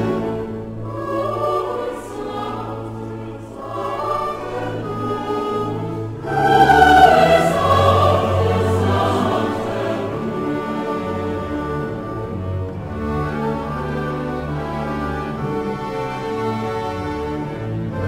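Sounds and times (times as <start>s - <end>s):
choir of held voices: 0.0s - 12.0s.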